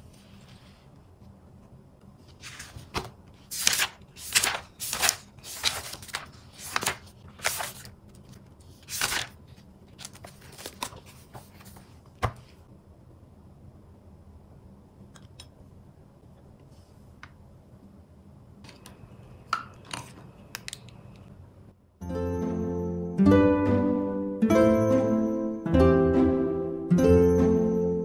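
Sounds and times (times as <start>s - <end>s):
notebook pages flipping: 2.2s - 12.6s.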